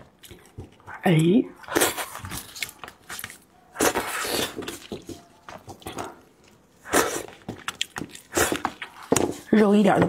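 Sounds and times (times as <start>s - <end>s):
wet sucking and mouth noises: 3.8s - 4.8s, 6.8s - 9.1s.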